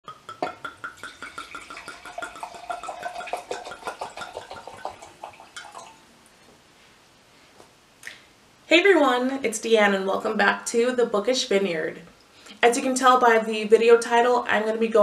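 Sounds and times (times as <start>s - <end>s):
liquid glugging from a bottle: 0.1s - 6.0s.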